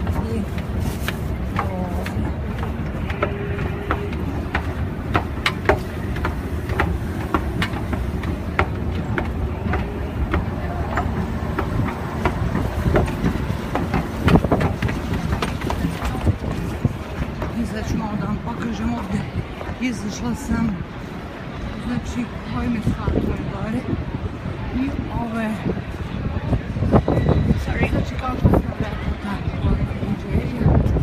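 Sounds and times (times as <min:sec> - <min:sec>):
escalator low rumble: 0:00.0 - 0:19.7
busy station ambience: 0:00.0 - 0:31.0.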